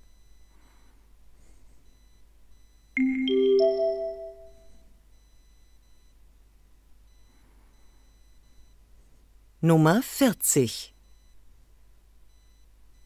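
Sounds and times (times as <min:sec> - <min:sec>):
three-note rising chime: 0:03.0 - 0:04.7.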